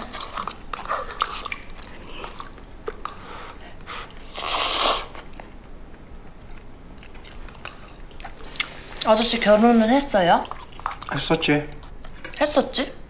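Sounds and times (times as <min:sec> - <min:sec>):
quiet chewing: 0:00.0 - 0:04.3, 0:05.1 - 0:09.4, 0:10.4 - 0:12.6
noodle slurp: 0:03.1 - 0:05.2.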